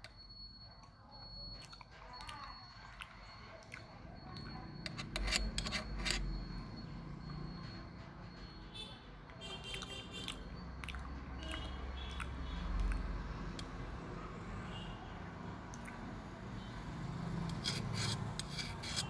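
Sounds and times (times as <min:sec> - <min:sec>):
close-up chewing: 0:01.5 - 0:05.0, 0:09.7 - 0:13.7
spoon scraping metal plate: 0:04.8 - 0:06.4, 0:17.4 - 0:19.0.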